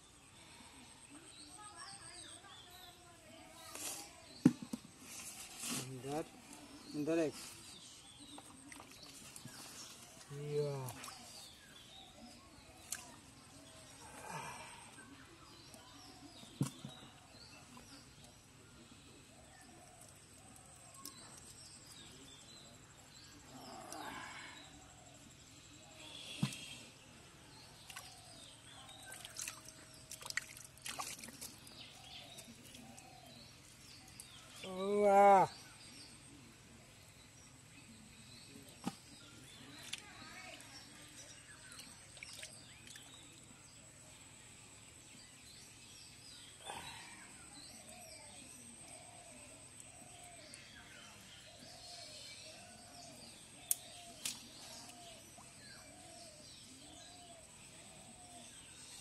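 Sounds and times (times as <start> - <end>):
birds chirping: 0.0 - 59.0
hands squelching in wet mud: 27.8 - 33.0.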